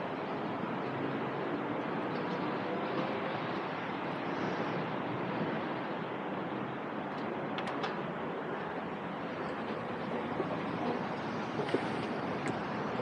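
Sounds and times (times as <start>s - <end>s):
station platform ambience: 0.0s - 13.0s.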